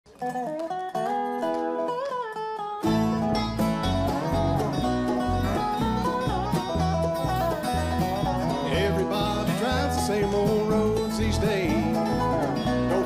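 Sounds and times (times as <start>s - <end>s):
bluegrass band playing: 0.1s - 13.0s
slide resonator guitar: 0.1s - 13.0s
bass: 2.8s - 13.0s.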